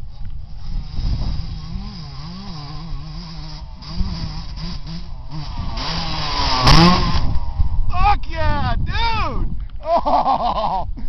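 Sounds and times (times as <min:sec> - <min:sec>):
motorbike engine revving: 0:00.0 - 0:07.9.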